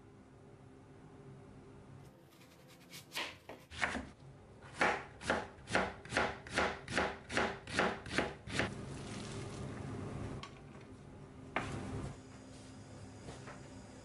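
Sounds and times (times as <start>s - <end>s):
knife chopping on cutting board: 2.4s - 4.1s.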